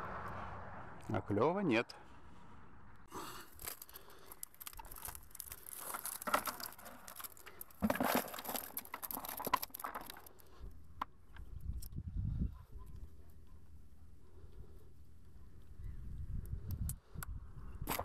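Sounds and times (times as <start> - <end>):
netting rustling and scraping: 3.5 - 10.5.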